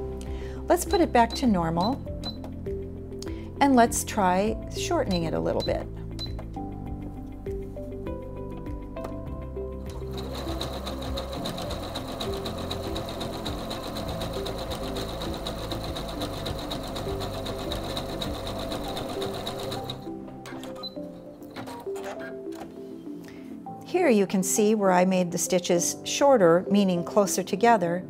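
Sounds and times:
sewing machine stitching: 9.9s - 22.3s.

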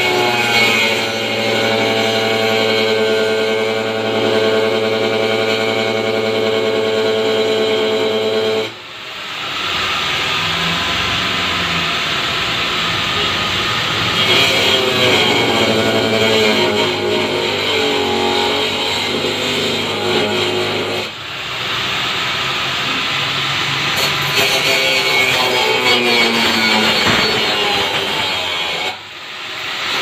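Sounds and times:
angle grinder whining: 0.0s - 30.0s
rough grinding: 24.0s - 29.0s.

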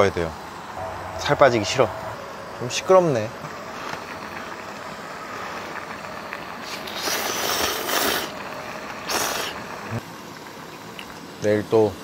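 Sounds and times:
gas stove burner hissing: 0.0s - 12.0s
man slurping noodles: 6.6s - 8.4s, 9.1s - 9.6s.

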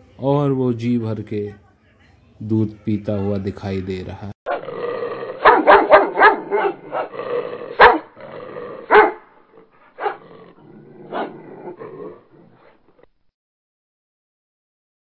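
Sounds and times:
dog barking: 5.3s - 8.2s, 8.8s - 9.3s, 9.9s - 10.3s, 11.0s - 11.4s.

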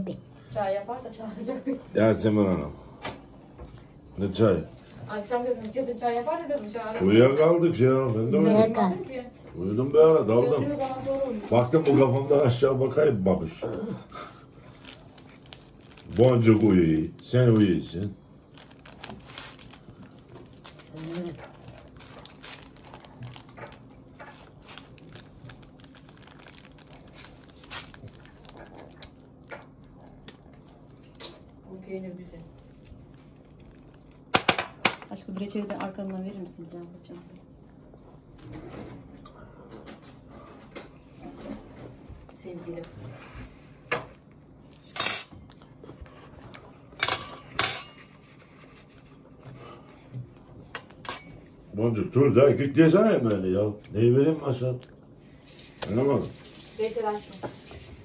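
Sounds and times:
bread crust crackling: 8.9s - 38.7s
paper crinkling: 14.4s - 34.4s.

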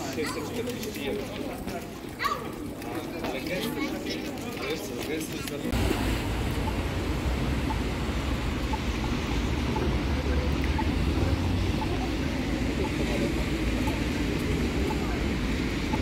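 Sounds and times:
traffic rumble: 0.0s - 16.0s
tyres hissing on wet road: 5.7s - 16.0s.

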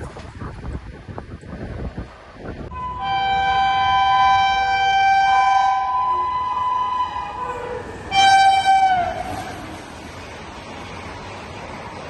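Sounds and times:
train rumble: 0.0s - 12.0s
two-note train horn: 2.7s - 9.5s.

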